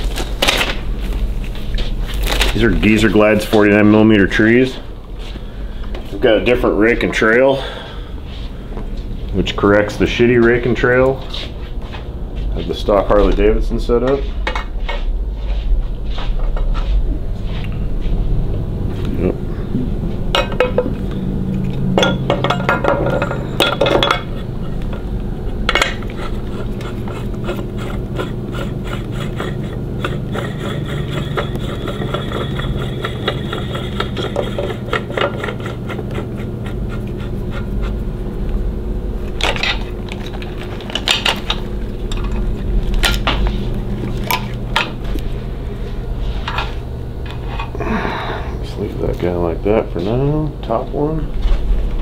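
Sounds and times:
steady low hum: 0:00.0 - 0:52.0
metal parts clinking and scraping: 0:22.0 - 0:25.0, 0:39.3 - 0:43.5.

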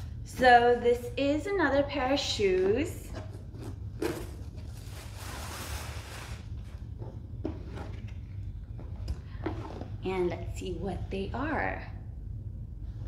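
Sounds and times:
cardboard and wrapping rustling: 0:03.1 - 0:08.2.

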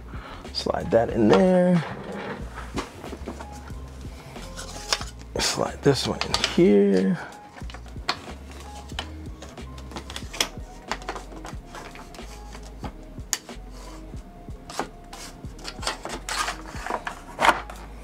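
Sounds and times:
scraping: 0:01.3 - 0:03.7, 0:04.3 - 0:05.4, 0:14.7 - 0:17.8
plastic parts clicking and knocking: 0:06.0 - 0:06.6, 0:07.5 - 0:13.5, 0:15.6 - 0:17.8.

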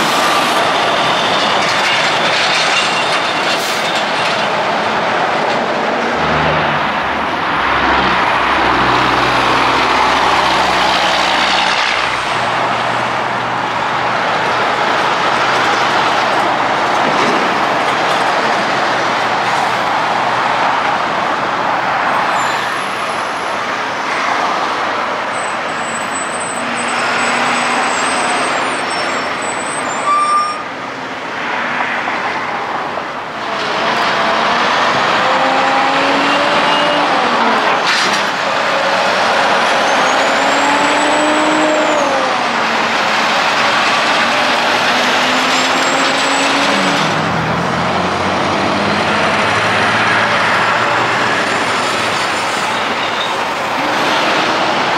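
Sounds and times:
diesel truck engines: 0:00.0 - 0:54.9
truck engine shifting gears: 0:33.5 - 0:54.9.

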